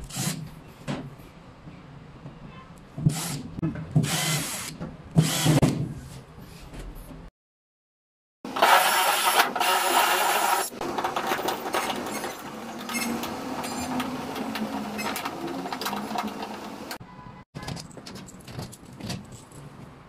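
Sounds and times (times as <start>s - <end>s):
cordless drill drilling into wall: 4.0s - 5.6s, 8.5s - 14.0s.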